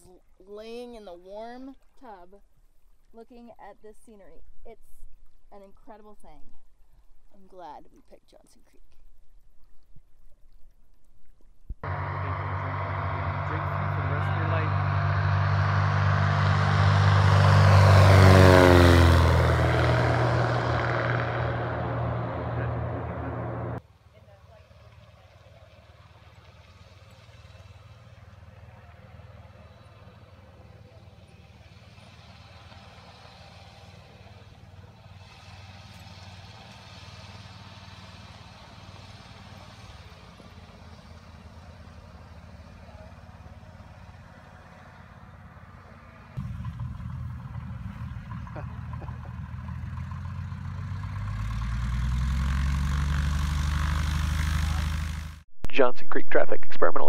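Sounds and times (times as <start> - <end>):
propeller airplane taking off: 11.8 - 57.0.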